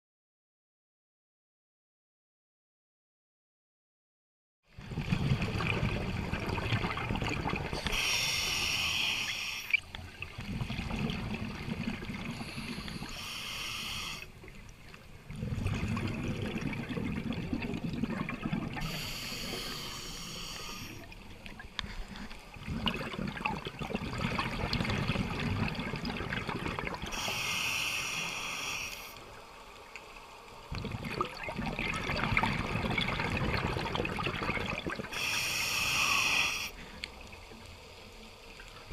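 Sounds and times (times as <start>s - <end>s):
regulator breathing hisses: 7.8s - 9.8s, 12.4s - 14.4s, 18.8s - 21.1s, 27.1s - 29.3s, 35.1s - 37.0s.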